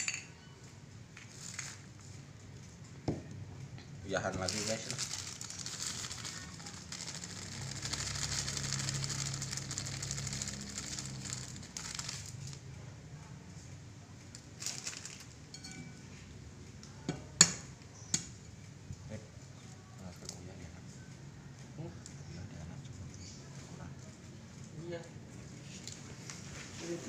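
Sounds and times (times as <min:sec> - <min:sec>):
salt rustling by hand: 0:04.4 - 0:12.6
salt pouring into plastic bowl: 0:05.6 - 0:12.4.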